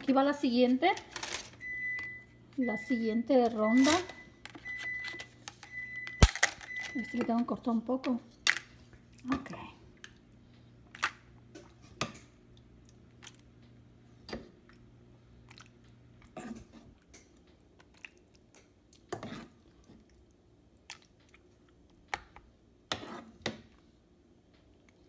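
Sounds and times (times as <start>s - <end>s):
wet squelches of meat sauce: 17.7s - 22.0s.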